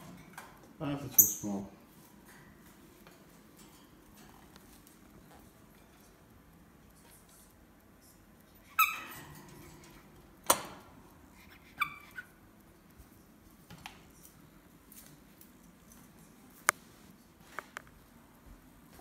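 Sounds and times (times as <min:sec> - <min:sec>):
monkey squeaking: 0:11.5 - 0:12.3.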